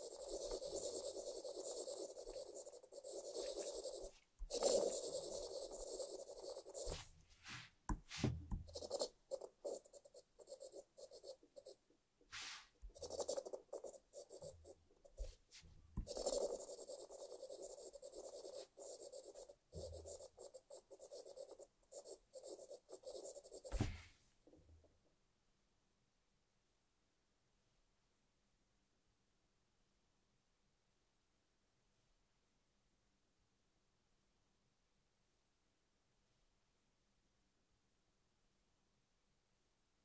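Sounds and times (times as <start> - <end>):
stylus scratching and tapping on glass: 0.0 - 7.0, 16.0 - 23.8.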